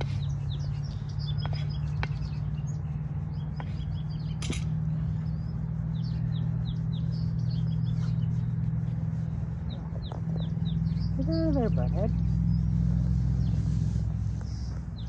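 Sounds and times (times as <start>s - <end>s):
small birds chirping: 0.0s - 15.0s
steady low hum: 0.0s - 15.0s.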